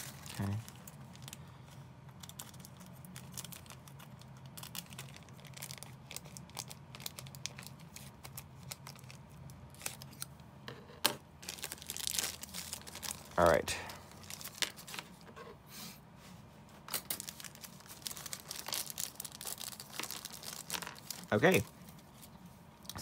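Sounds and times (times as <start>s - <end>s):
plastic bag crinkling: 0.0s - 10.3s, 11.4s - 15.2s, 16.9s - 22.9s.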